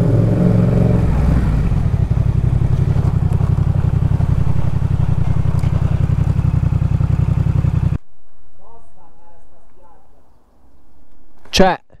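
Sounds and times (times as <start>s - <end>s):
motorcycle engine running: 0.0s - 8.0s.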